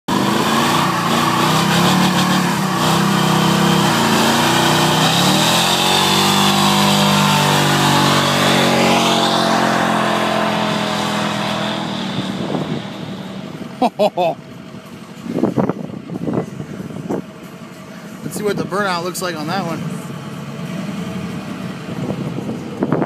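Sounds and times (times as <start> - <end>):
truck engine revving hard: 0.1 - 14.3.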